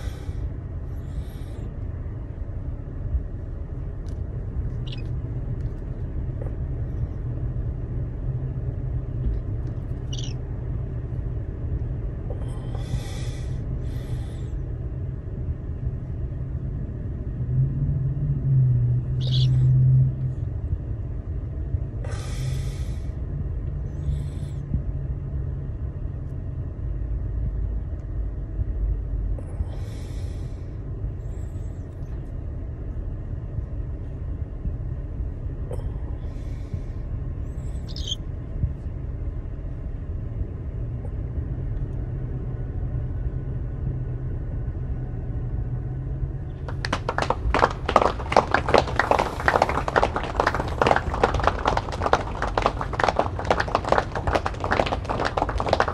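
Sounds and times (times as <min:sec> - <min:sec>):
car engine rumble inside cabin: 0:00.0 - 0:55.9
cockatiel chirp: 0:04.8 - 0:05.1, 0:10.0 - 0:10.4, 0:19.2 - 0:19.6, 0:37.8 - 0:38.2.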